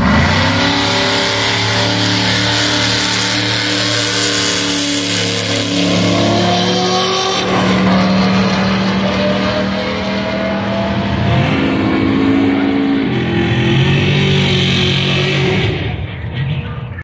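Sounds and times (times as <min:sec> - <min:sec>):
drag racing engines full throttle: 0:00.0 - 0:17.0.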